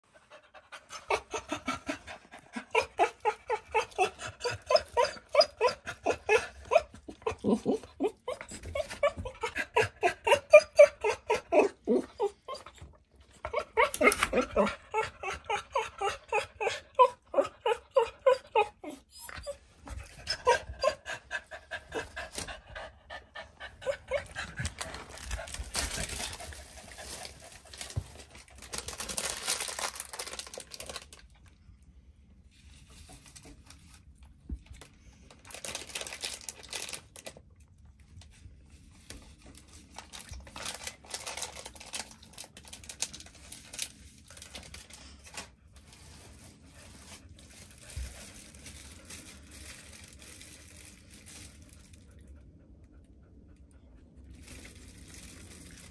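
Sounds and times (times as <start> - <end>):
dog whining and whimpering: 0.4 - 27.2.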